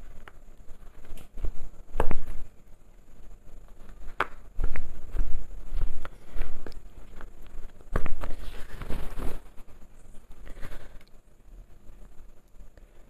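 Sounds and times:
fabric rustling: 0:00.0 - 0:11.0
needle and thread through cloth: 0:03.2 - 0:11.1.

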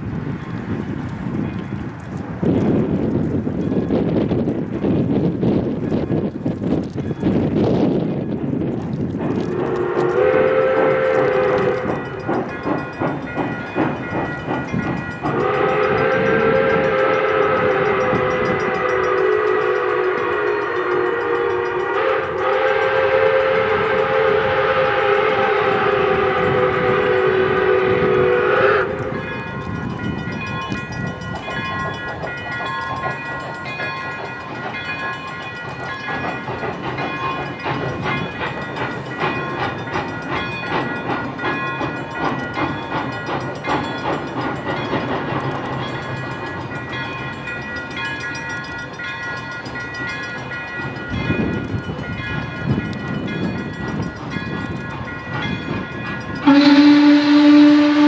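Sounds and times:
train wheels clattering on rails: 0:00.0 - 0:58.0
steam whistle chord: 0:09.5 - 0:12.2, 0:15.3 - 0:29.3, 0:56.4 - 0:58.0
train signal blast: 0:15.2 - 0:29.5, 0:56.4 - 0:58.0.

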